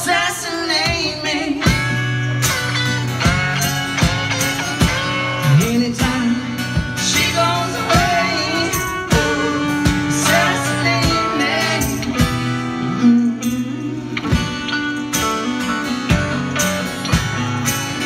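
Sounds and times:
man and woman singing: 0.0s - 2.0s, 4.8s - 14.8s
electric guitar: 0.0s - 18.0s
strummed acoustic guitar: 0.0s - 18.0s.

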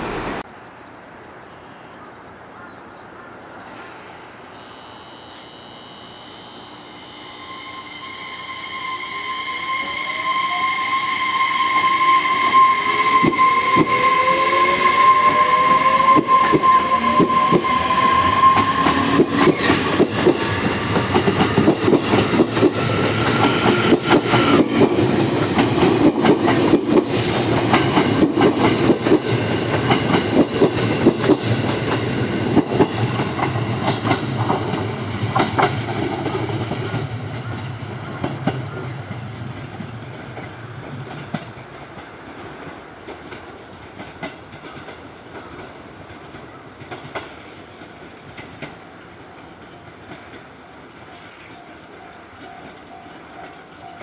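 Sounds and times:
electric train motor whine: 4.4s - 26.8s
train wheels clacking over rail joints: 16.1s - 51.4s.

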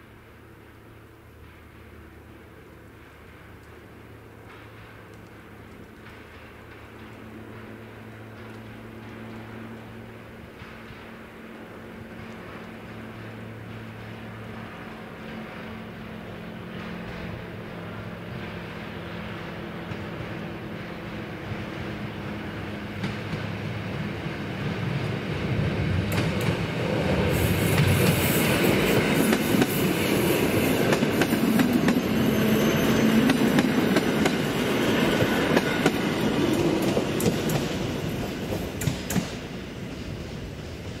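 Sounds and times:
electric train hum: 0.0s - 41.0s
train wheels rushing on rails: 0.0s - 41.0s.

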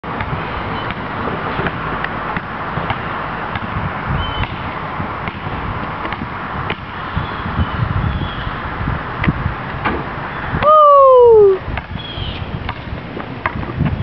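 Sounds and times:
basketball bouncing on asphalt: 0.1s - 7.2s, 12.6s - 14.0s.

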